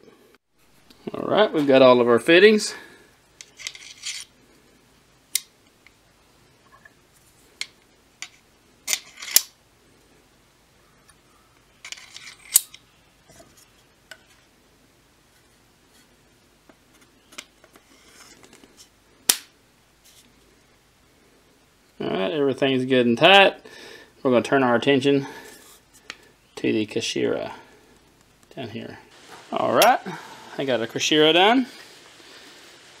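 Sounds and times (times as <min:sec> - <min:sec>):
metal fittings clicking and scraping: 0:03.4 - 0:04.3, 0:07.6 - 0:09.5, 0:11.8 - 0:12.8.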